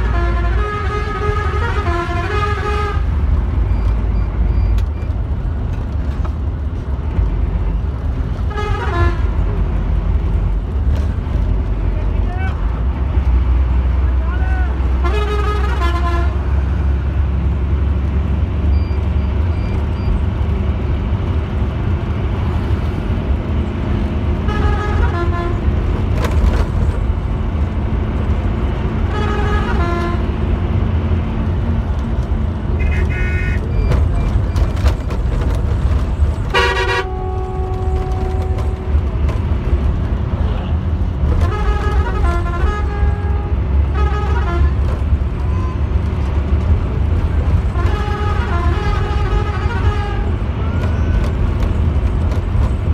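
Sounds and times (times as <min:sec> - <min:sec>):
horn blasts: 0:00.0 - 0:03.2, 0:08.5 - 0:09.6, 0:14.9 - 0:16.7, 0:24.4 - 0:25.8, 0:29.0 - 0:30.6, 0:32.7 - 0:33.9, 0:36.5 - 0:39.2, 0:41.4 - 0:45.9, 0:47.6 - 0:51.2
bus engine drone: 0:00.0 - 0:52.9
road noise: 0:00.0 - 0:52.9.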